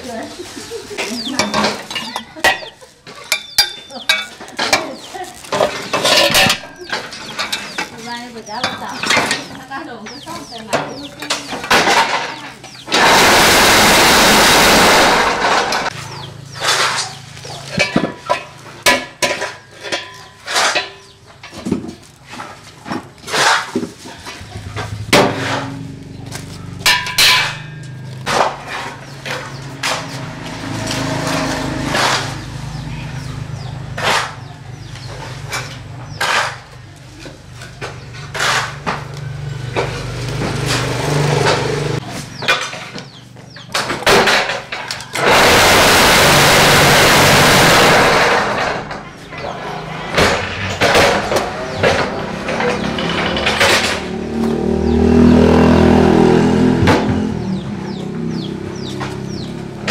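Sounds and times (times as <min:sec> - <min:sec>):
wheelbarrow metal knocks and clanks: 0:01.1 - 0:13.8, 0:14.4 - 0:32.5, 0:48.1 - 0:54.6
loud even rushing noise: 0:12.9 - 0:15.9.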